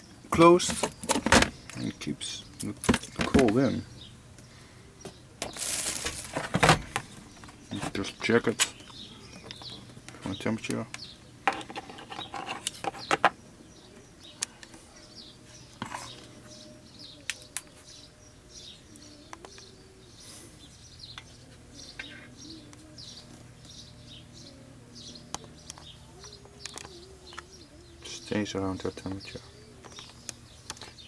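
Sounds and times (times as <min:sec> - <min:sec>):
small birds chirping: 0:00.0 - 0:31.0
handling knocks and clicks: 0:02.6 - 0:03.7, 0:05.1 - 0:13.4.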